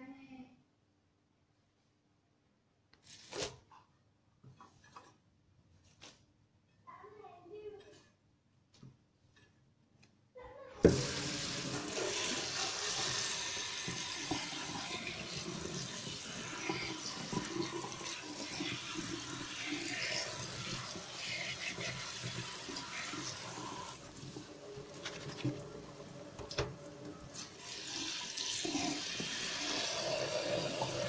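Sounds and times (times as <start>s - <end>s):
tap water running onto leaves: 10.9s - 31.0s.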